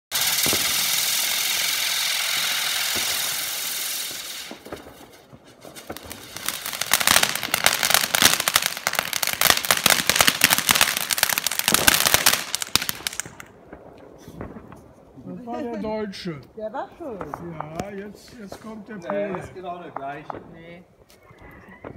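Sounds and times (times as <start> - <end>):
firework hiss: 0.1 - 13.5
firework pops and crackles: 0.1 - 15.7, 16.4 - 21.9.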